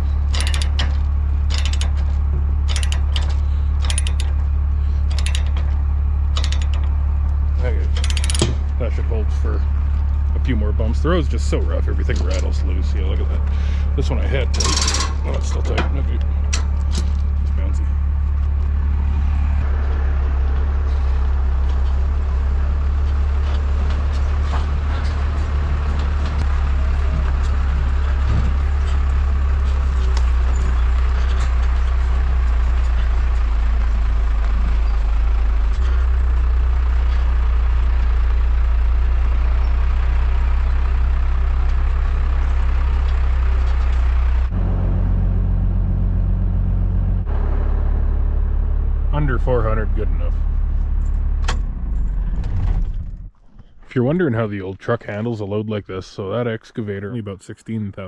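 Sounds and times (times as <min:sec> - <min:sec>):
rattles: 0:00.0 - 0:44.8
road noise: 0:00.0 - 0:57.3
diesel truck engine droning: 0:00.0 - 0:58.0.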